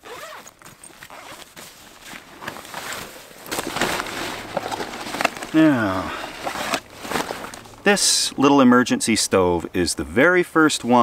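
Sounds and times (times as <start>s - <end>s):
rummaging through nylon backpack: 0.0s - 7.8s
rustling of tall grass: 0.2s - 7.9s.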